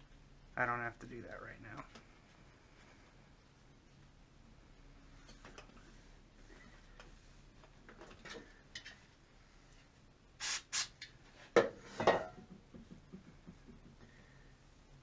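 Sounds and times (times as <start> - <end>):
aerosol can hissing: 10.4 - 10.9.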